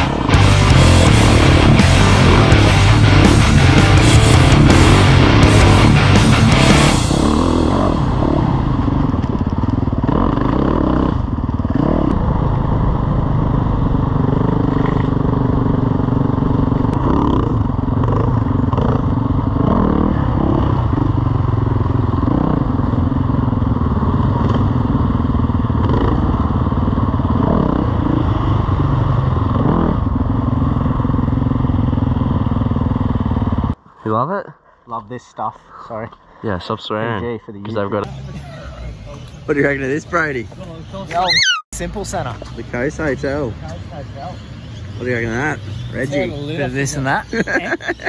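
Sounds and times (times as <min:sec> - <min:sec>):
dirt bike engine revving: 0:00.0 - 0:33.8.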